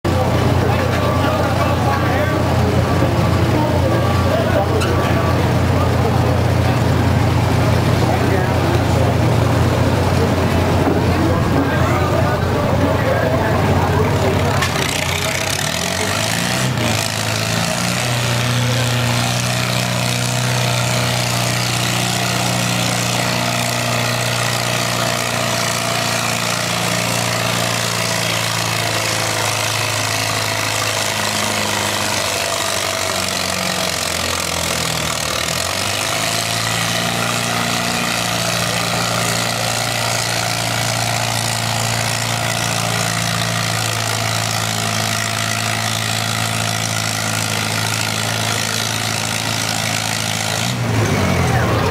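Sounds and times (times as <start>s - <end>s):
tractor engine running under load: 0.1s - 51.9s.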